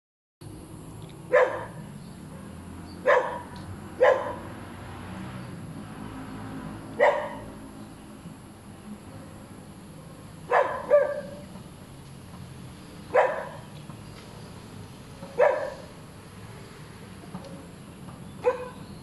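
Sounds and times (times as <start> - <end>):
dog barking: 1.3 - 4.5, 7.0 - 7.6, 10.5 - 11.4, 13.1 - 13.7, 15.3 - 15.9, 18.4 - 18.8.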